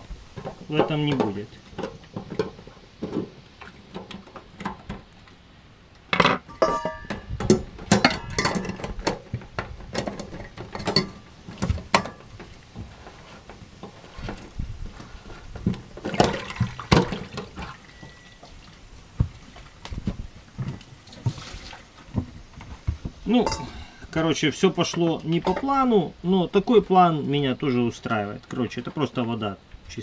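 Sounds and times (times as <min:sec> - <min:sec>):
water splashing into steel bowl: 0:16.0 - 0:18.7.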